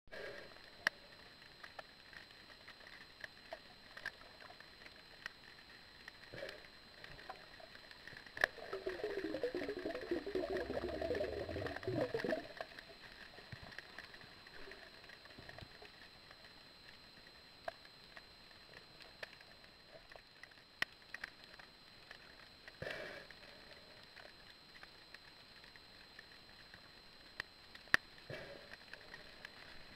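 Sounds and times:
faint underwater clicks: 0.1s - 29.9s
water bubbling gurgle: 8.2s - 13.1s.

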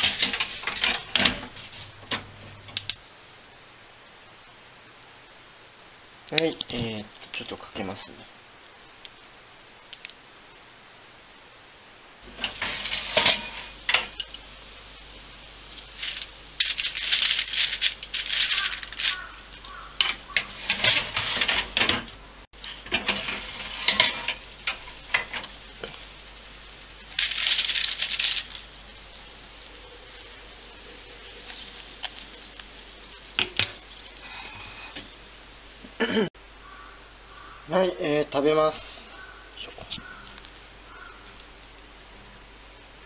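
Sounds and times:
aluminium foil crinkling: 15.6s - 21.8s, 27.0s - 29.2s.

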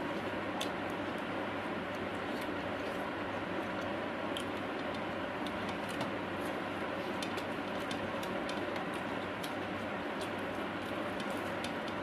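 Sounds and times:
chewing clicks and smacks: 3.8s - 6.1s, 7.2s - 12.0s.

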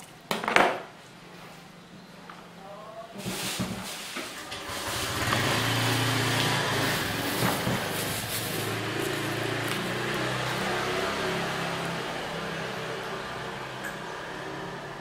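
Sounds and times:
motor engine running: 4.5s - 15.0s.

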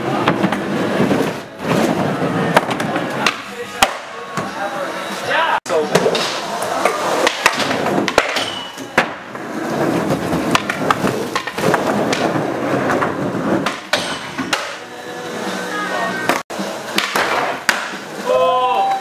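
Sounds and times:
skateboard wheels rolling: 0.0s - 19.0s
skateboard clacks: 5.9s - 14.9s, 16.2s - 18.1s.

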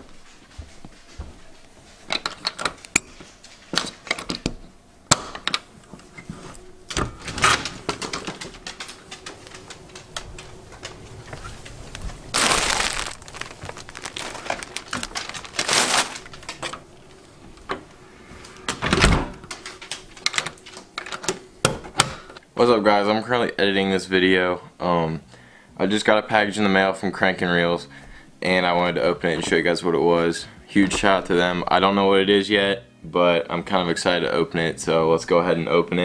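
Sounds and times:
rustling: 7.4s - 18.6s.

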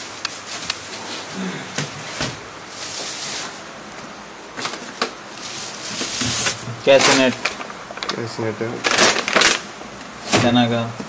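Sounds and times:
plastic rustling: 4.6s - 10.7s.

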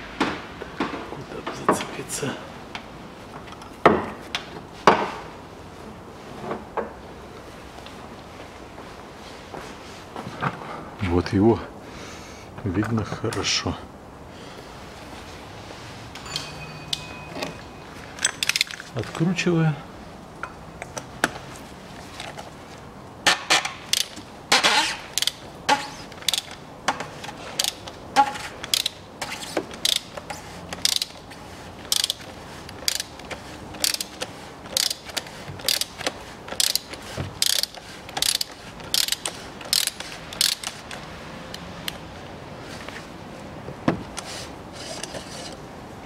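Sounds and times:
ratchet wrench clicking: 23.5s - 26.6s, 27.6s - 28.0s, 28.7s - 29.0s, 29.8s - 31.2s, 31.9s - 41.0s.

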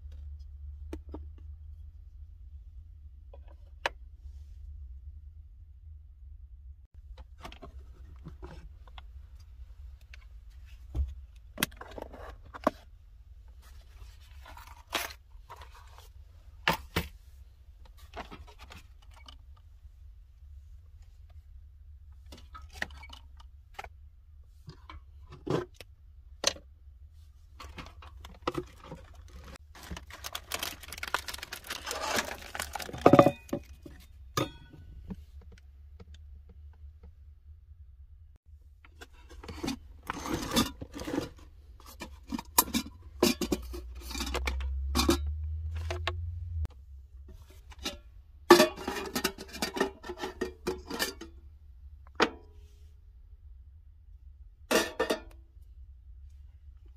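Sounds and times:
clatter and rustling: 27.5s - 35.6s.

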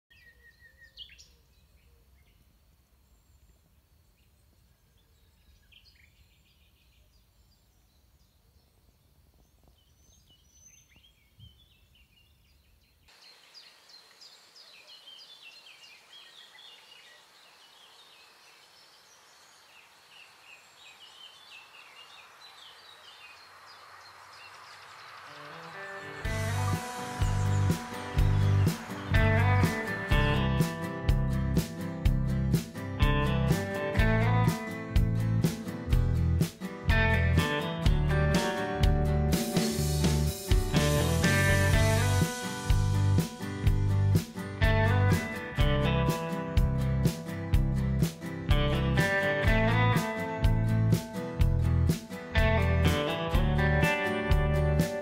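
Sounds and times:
songbirds singing and chirping: 0.1s - 55.0s
low rumble: 26.3s - 31.6s.

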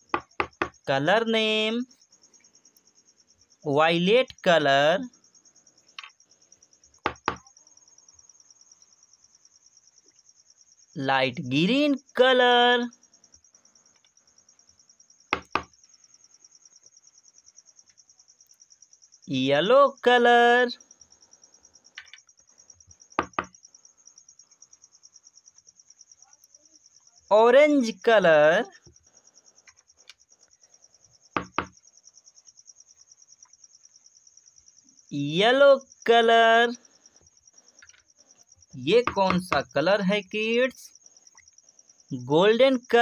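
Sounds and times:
cricket trilling: 0.0s - 43.0s
plastic jar knocking on table: 7.1s - 7.4s
plastic jars knocking on table: 7.1s - 7.4s, 15.4s - 15.7s, 23.2s - 23.5s, 31.4s - 31.8s.

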